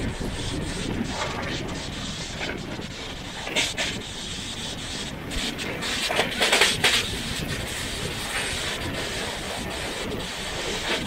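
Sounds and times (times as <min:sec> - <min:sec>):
hissing rush: 0:00.0 - 0:11.0
rattling hiss: 0:00.0 - 0:11.0
train wheels rumbling on track: 0:00.0 - 0:11.0.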